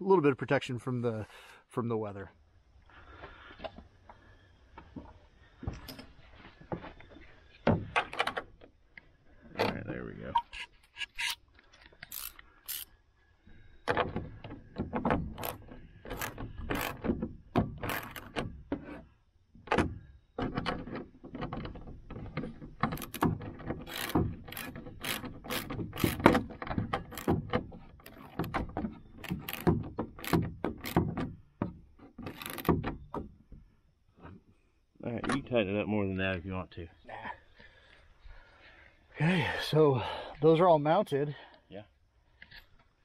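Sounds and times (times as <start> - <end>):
socket ratchet clicking: 12.0 - 12.9, 23.0 - 26.3.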